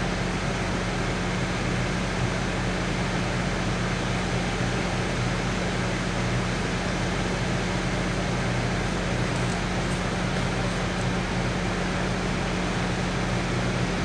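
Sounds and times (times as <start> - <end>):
diesel locomotive idling: 0.0 - 14.0.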